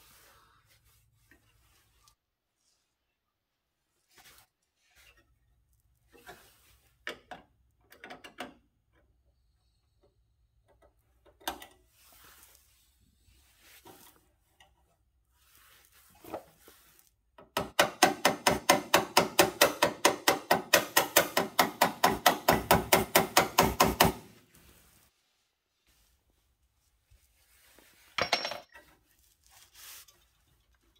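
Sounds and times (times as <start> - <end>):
hammer tapping on sheet metal: 17.5 - 24.2.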